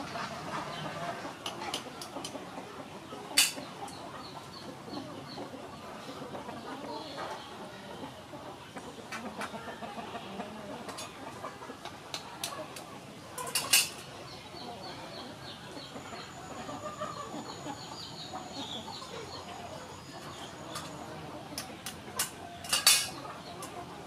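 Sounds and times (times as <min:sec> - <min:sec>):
hens clucking: 0:00.0 - 0:24.0.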